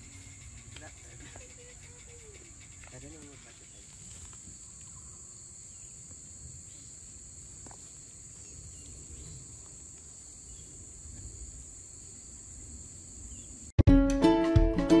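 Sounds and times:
insects shrilling: 0:00.0 - 0:13.7.

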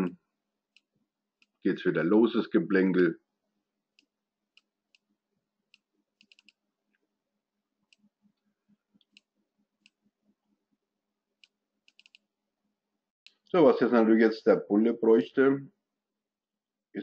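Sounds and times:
faint computer mouse clicks: 0:05.7 - 0:06.6, 0:11.4 - 0:12.2.

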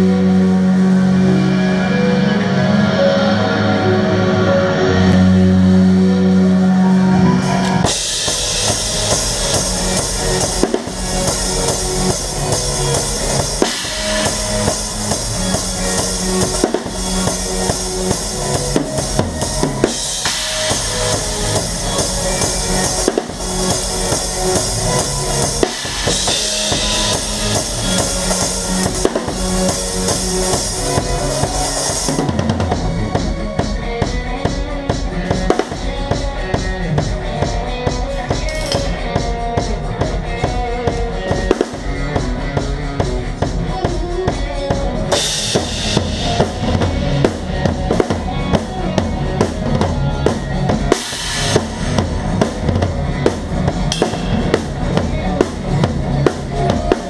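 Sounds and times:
live band playing: 0:00.0 - 0:57.0
crash and ride cymbals: 0:07.4 - 0:33.2, 0:45.1 - 0:57.0
bass drum and snare: 0:07.6 - 0:57.0.

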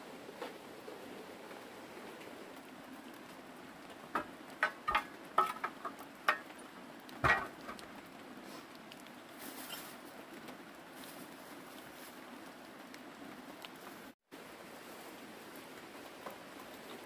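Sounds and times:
sticks knocking and clattering: 0:04.1 - 0:06.6, 0:07.2 - 0:08.0.

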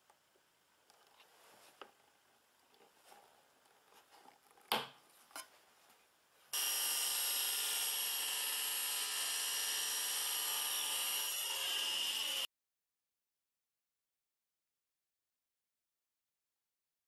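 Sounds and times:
table saw whine: 0:06.6 - 0:12.5.

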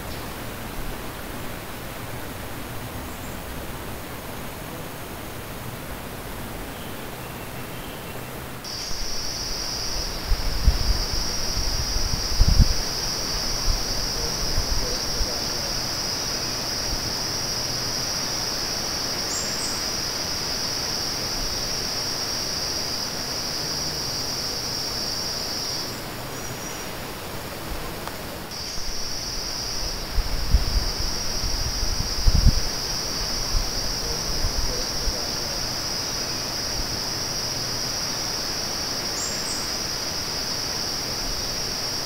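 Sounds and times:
outdoor background hiss: 0:00.0 - 0:42.0
high-pitched insect drone: 0:08.7 - 0:26.6, 0:28.5 - 0:42.0.

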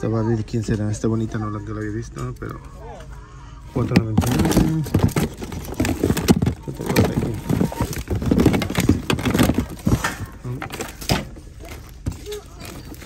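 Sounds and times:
plastic wrap rustling: 0:03.7 - 0:13.0
plastic toys knocking together: 0:03.8 - 0:13.0.

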